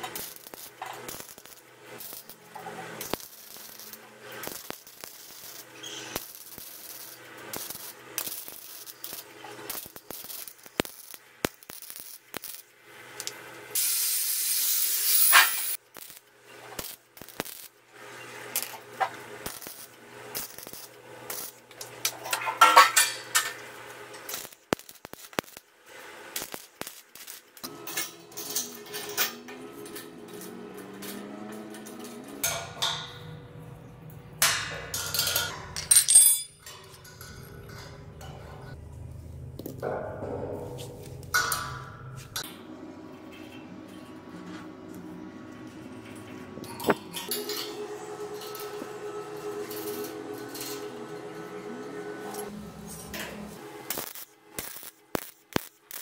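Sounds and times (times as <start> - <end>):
loud hiss: 13.8 - 15.8
metal parts clinking and scraping: 26.4 - 33.0, 34.9 - 38.8.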